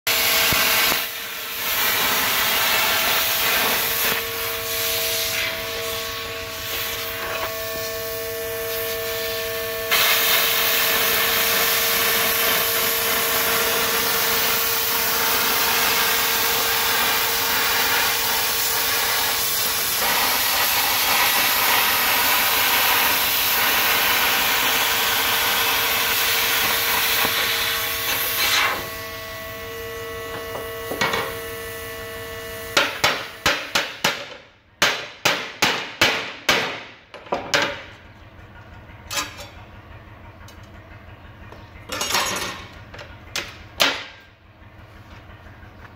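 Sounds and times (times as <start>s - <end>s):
plasma cutter hissing: 0.1s - 7.4s, 8.7s - 29.0s
steady hum: 0.1s - 45.9s.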